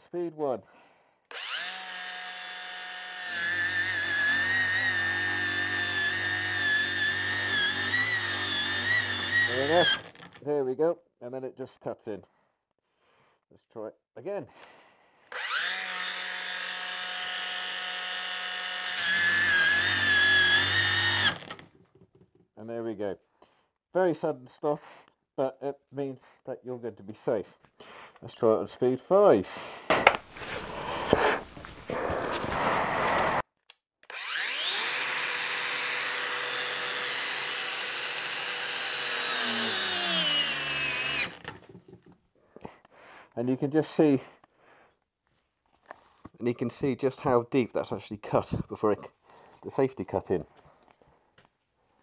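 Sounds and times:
angle grinder whining: 0:01.3 - 0:10.4, 0:15.3 - 0:21.7, 0:30.0 - 0:33.4, 0:34.1 - 0:41.8
grinder cutting sheet metal: 0:01.4 - 0:10.4, 0:15.4 - 0:21.6, 0:30.0 - 0:33.4, 0:34.1 - 0:41.6.

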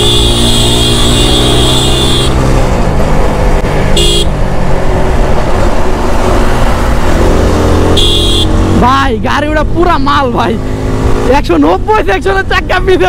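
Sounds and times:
high vehicle horn: 0:00.0 - 0:02.4, 0:04.0 - 0:04.3, 0:08.0 - 0:08.5.

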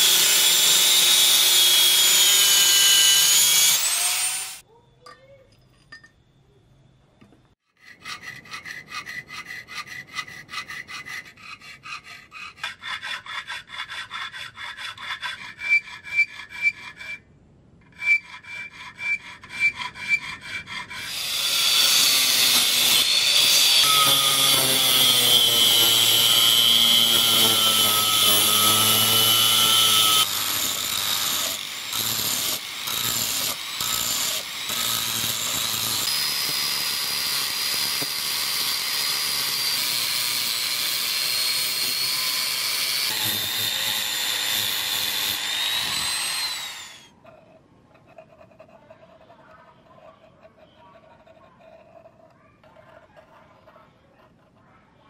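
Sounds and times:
angle grinder whining: 0:00.0 - 0:04.6, 0:21.0 - 0:47.2
file rasping on steel: 0:00.0 - 0:04.6, 0:07.7 - 0:54.6.

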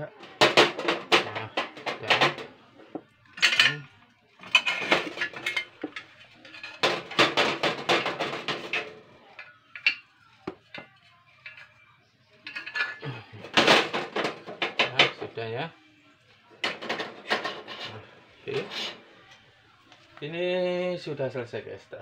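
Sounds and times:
metal stove parts clattering: 0:00.2 - 0:10.0, 0:12.4 - 0:15.3, 0:16.6 - 0:19.0.

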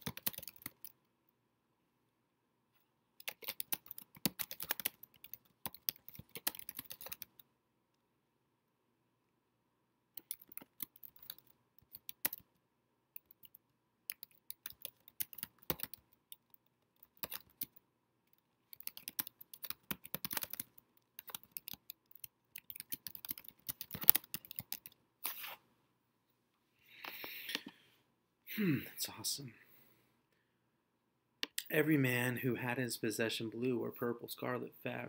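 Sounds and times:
typing on computer keyboard: 0:00.0 - 0:01.0, 0:03.2 - 0:07.4, 0:10.2 - 0:12.5, 0:13.2 - 0:17.8, 0:18.7 - 0:25.0.

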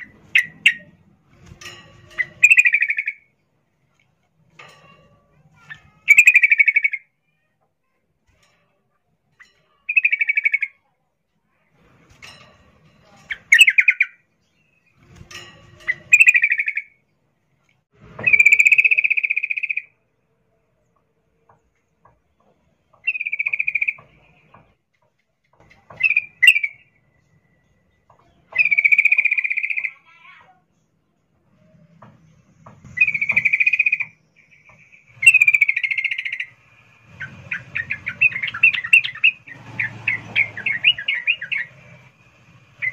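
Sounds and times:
bird harsh rattling calls: 0:00.0 - 0:03.3, 0:05.6 - 0:07.1, 0:09.4 - 0:10.8, 0:13.2 - 0:17.0, 0:22.9 - 0:24.5, 0:32.9 - 0:42.9.

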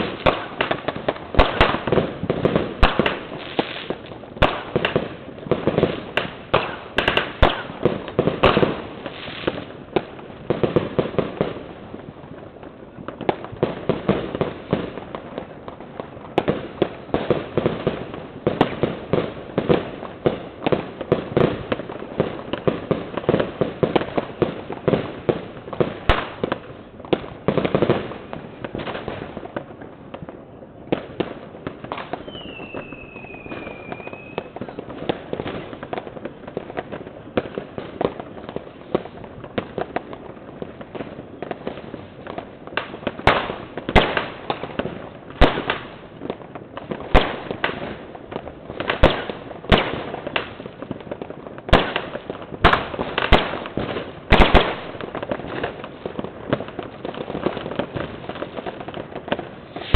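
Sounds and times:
fireworks and firecrackers banging: 0:00.0 - 0:59.9
falling whistle: 0:32.2 - 0:34.5.

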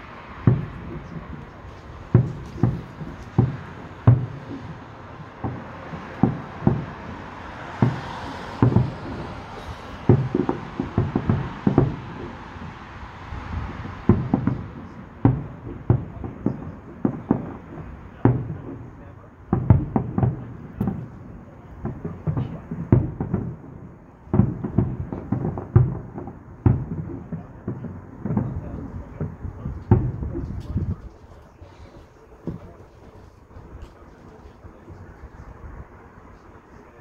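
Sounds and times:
fireworks hiss: 0:00.0 - 0:15.2
distant fireworks bangs and booms: 0:00.0 - 0:37.0.

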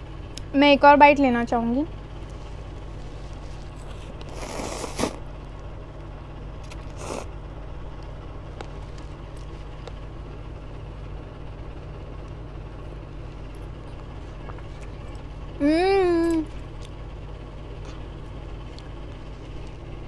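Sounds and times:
steady low hum: 0:00.0 - 0:20.0
person slurping noodles: 0:04.2 - 0:05.2, 0:06.9 - 0:07.3.

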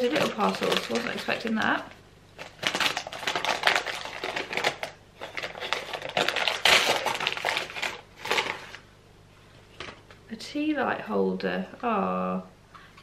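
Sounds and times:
wrapping paper tearing and crinkling: 0:00.0 - 0:01.8, 0:02.4 - 0:08.8.

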